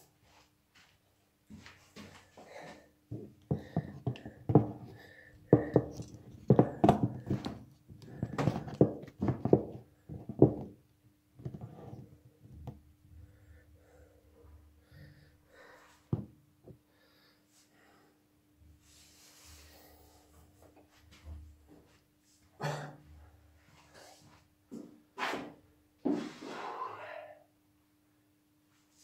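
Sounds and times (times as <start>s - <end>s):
knocks and rubbing on microphone: 3.1s - 10.8s, 11.4s - 12.8s.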